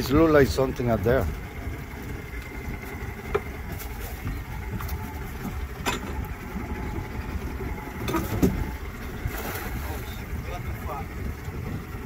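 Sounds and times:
outboard motor idling: 0.0 - 12.0
wind noise: 3.7 - 12.0.

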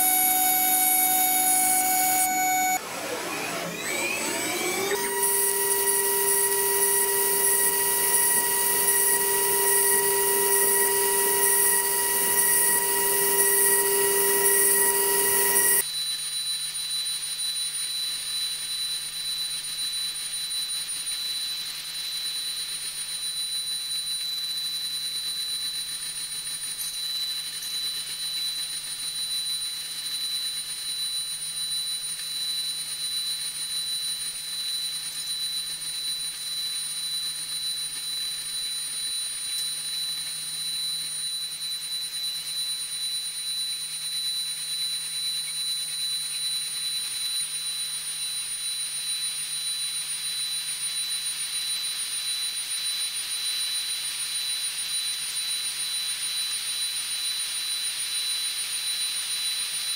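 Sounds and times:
cnc spindle whining: 0.0 - 15.8
cutter hissing through metal: 0.0 - 15.8.

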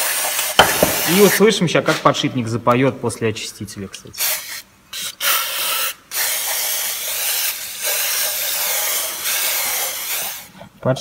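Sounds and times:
aerosol spray hissing: 4.2 - 10.5.

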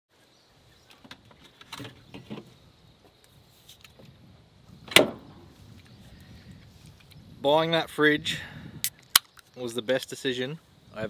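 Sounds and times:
knocks and rustles: 0.8 - 2.6.

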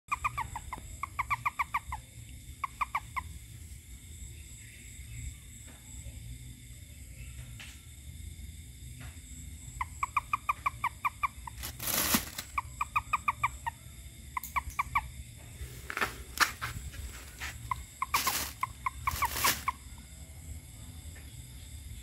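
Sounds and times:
frog calling: 0.1 - 5.2, 9.5 - 20.3.

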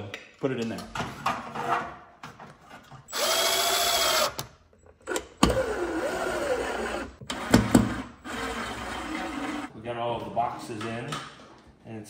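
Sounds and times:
cordless drill driving screws: 3.1 - 4.5, 5.1 - 9.7.

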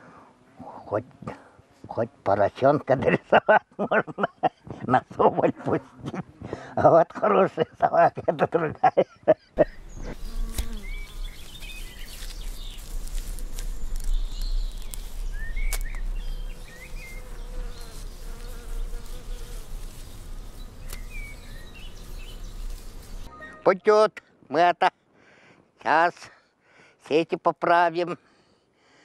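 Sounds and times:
insect buzzing: 9.6 - 23.3
bird chirps: 9.6 - 23.7.

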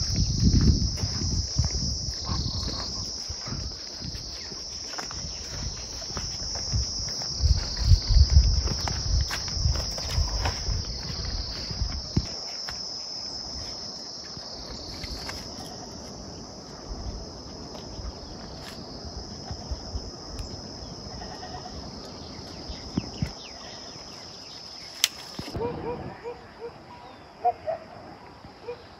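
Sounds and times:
footsteps on dirt path: 0.0 - 20.0
insects chirring: 0.0 - 28.9.

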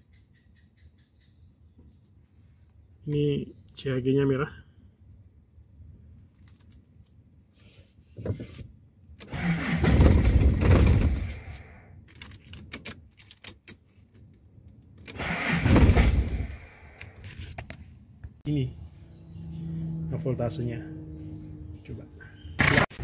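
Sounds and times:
car starter motor cranking: 9.2 - 11.7, 15.1 - 17.1
keys rattling: 12.1 - 14.4.

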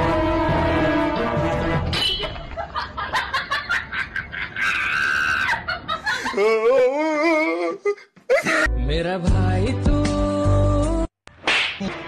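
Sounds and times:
person laughing: 2.3 - 8.7
high held scream: 4.6 - 5.6.

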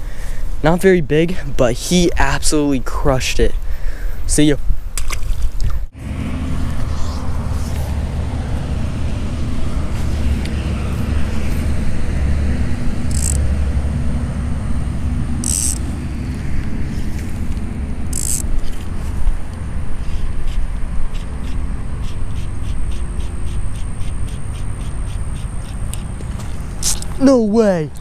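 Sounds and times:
distant road traffic rumble: 5.8 - 28.0
fly line zipping through rod guides: 6.5 - 8.0, 13.0 - 13.6, 15.2 - 19.3, 20.0 - 27.3.

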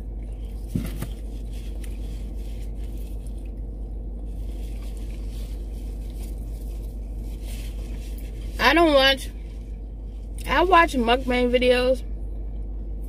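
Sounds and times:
low hum: 0.0 - 13.0
food handling sounds: 0.2 - 8.6
soft chewing: 1.2 - 8.6.

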